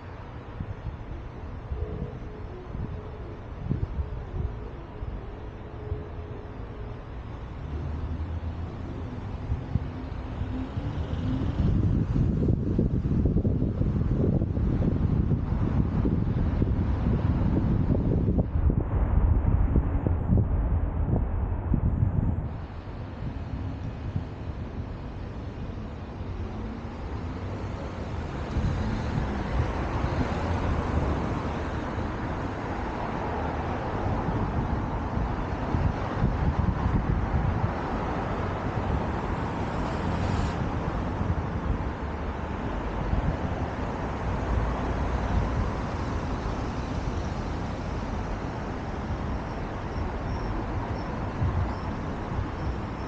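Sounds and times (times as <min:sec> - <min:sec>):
motor vehicle on road: 0:00.0 - 0:53.0.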